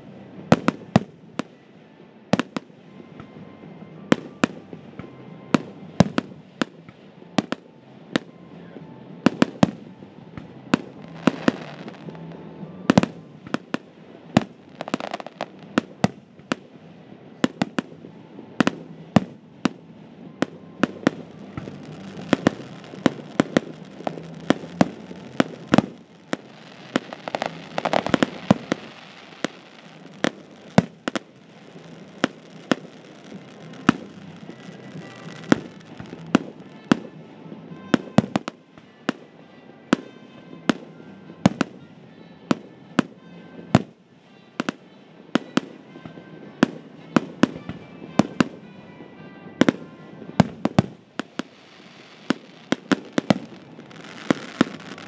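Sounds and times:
firework shells bursting: 20.9 - 36.9.

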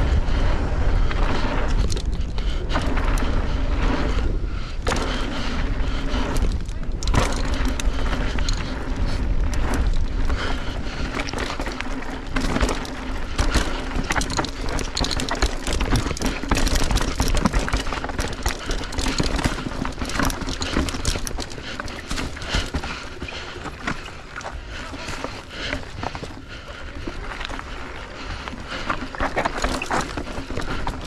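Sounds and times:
low rumble: 0.0 - 17.0
tyres rolling over dirt: 0.0 - 31.0
bike clattering over bumps: 0.1 - 31.0.

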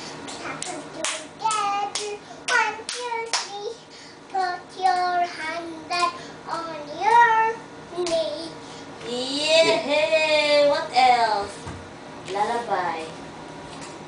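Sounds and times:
hand claps: 0.3 - 3.6
toddler singing: 0.5 - 8.6.

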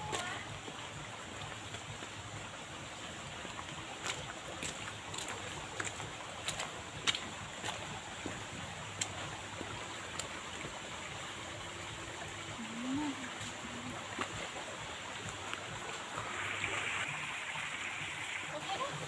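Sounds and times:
footsteps on dirt road: 3.5 - 10.8.

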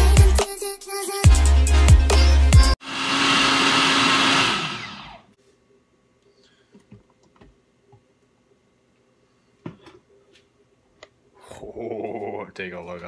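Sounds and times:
blender motor winding down: 2.8 - 5.3.

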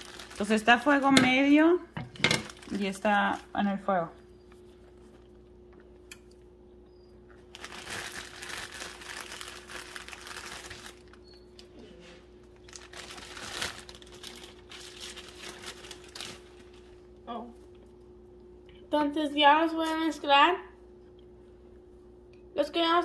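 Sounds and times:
plastic packaging crinkling: 0.0 - 1.7, 2.4 - 3.6, 7.3 - 11.7, 12.4 - 17.1
faint steady hum: 0.0 - 23.0.

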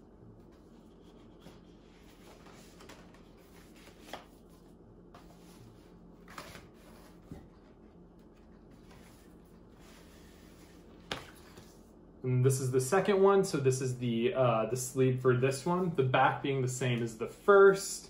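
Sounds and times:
paper record sleeves rustling: 0.4 - 11.8.

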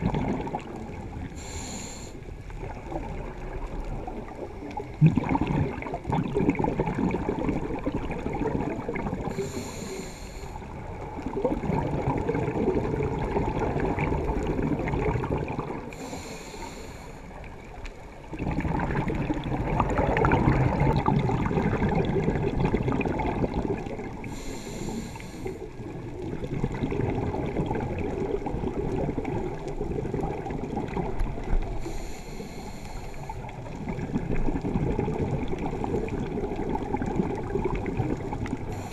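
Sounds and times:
bubbling exhaled air: 0.0 - 17.5, 18.2 - 38.9
regulator hissing inhales: 1.4 - 2.3, 9.3 - 10.7, 15.9 - 17.4, 24.2 - 25.7, 31.8 - 33.5.

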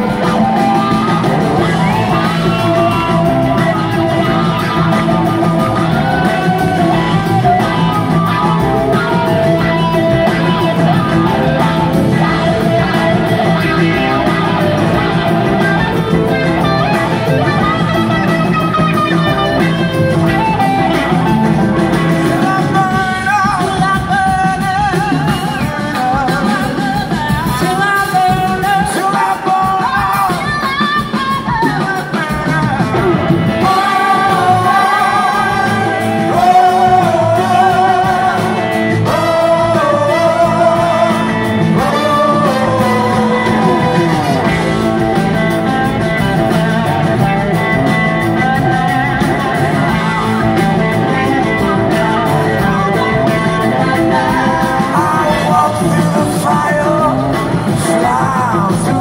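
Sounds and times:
live rock band playing: 0.0 - 59.0.

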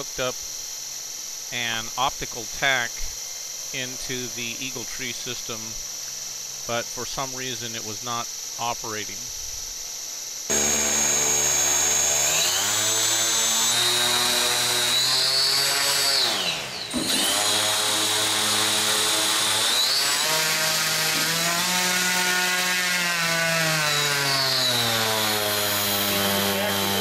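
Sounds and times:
electric motor whine: 9.3 - 27.0.

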